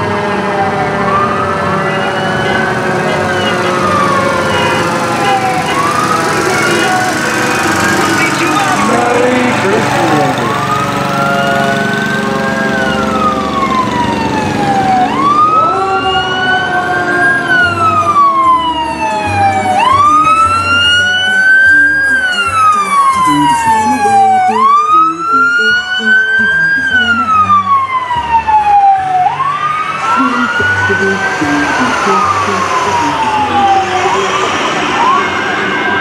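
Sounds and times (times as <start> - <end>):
fire truck sirens wailing: 0.0 - 36.0.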